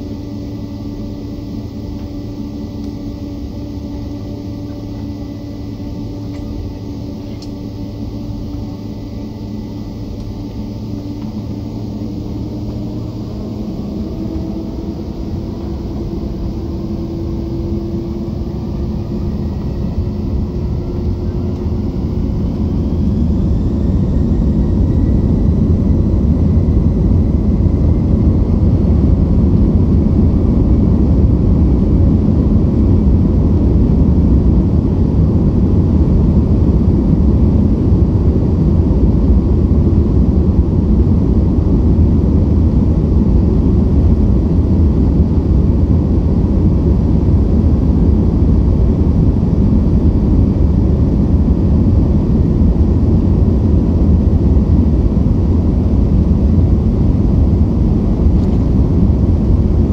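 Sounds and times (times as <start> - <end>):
jet engines humming: 0.0 - 59.9
jet engines whining: 0.0 - 59.9
low engine rumble: 0.0 - 59.9.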